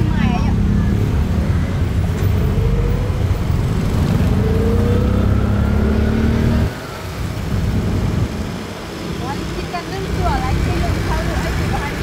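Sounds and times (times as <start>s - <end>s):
vehicle engine revving: 0.0s - 8.4s
road noise: 0.0s - 12.0s.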